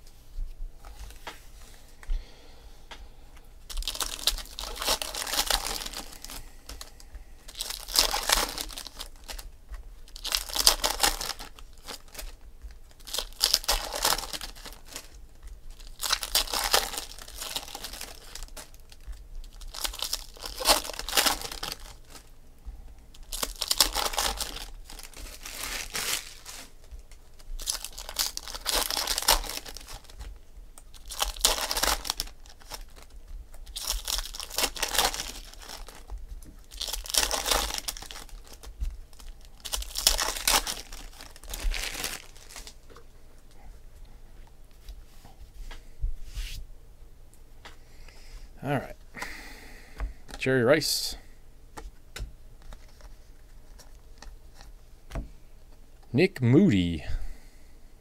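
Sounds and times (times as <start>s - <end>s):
plastic wrappers crinkling and tearing: 3.6s - 22.4s, 23.0s - 43.6s, 52.6s - 54.8s.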